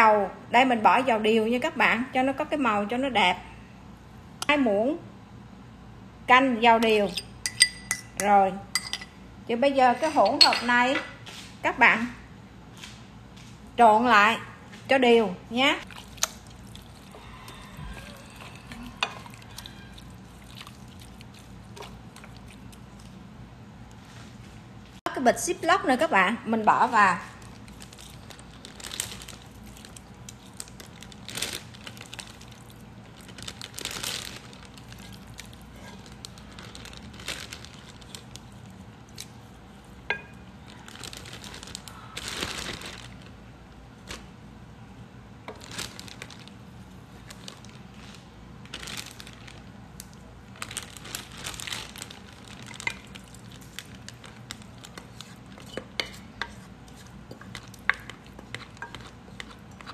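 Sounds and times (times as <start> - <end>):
plastic bag crinkling: 27.3 - 43.4, 45.5 - 56.4.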